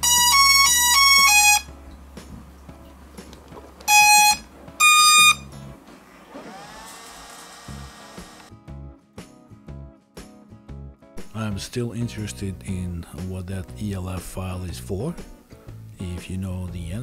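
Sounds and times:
electronic beeps jingle: 3.9 - 5.5
single beeps: 3.9 - 5.5.

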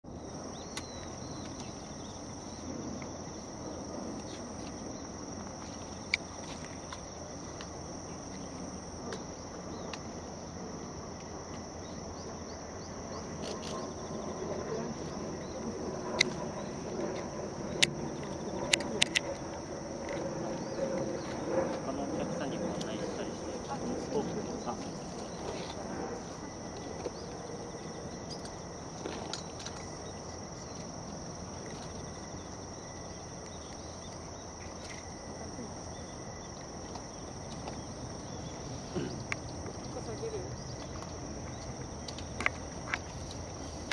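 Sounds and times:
high-pitched insect trilling: 0.1 - 43.9
sharp clicks: 18.6 - 19.4.

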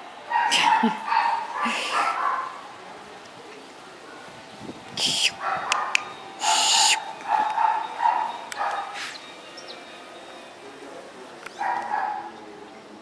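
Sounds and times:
puppy yipping: 5.2 - 9.2.

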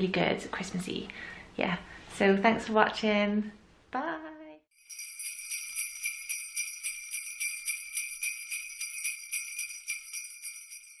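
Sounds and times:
jingle bells shaken: 4.7 - 11.0.

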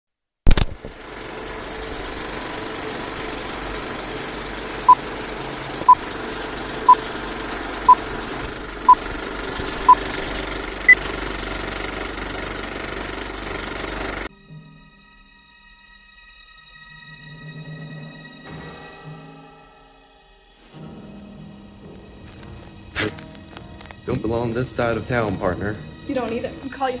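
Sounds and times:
film projector clatter: 0.5 - 14.3.

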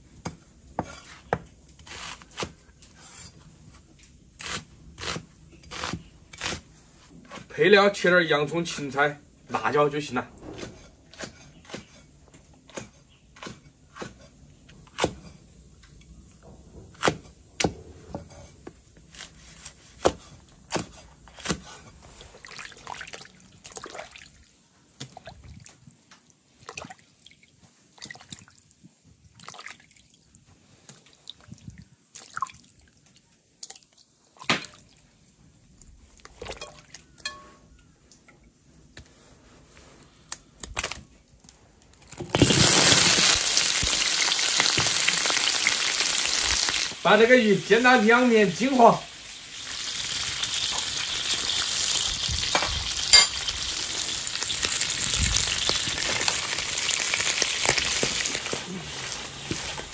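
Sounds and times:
water dripping and splashing: 22.3 - 37.2.

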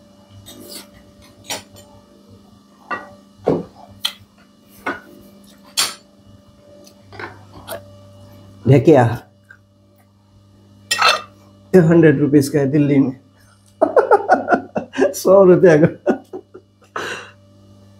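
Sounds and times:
faint steady hum: 0.0 - 17.9
cutlery clinking on dishes: 0.4 - 1.9, 10.9 - 11.4.

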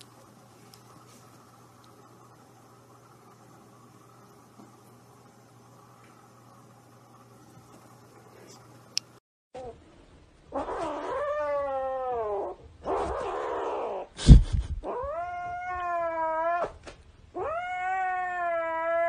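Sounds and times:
kitten yowling: 10.5 - 14.1, 14.8 - 16.8, 17.4 - 19.0.

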